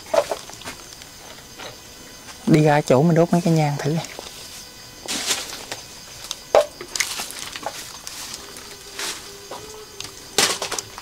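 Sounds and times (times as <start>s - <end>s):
faint steady hum: 0.0s - 11.0s
rustles and scrapes: 3.4s - 11.0s.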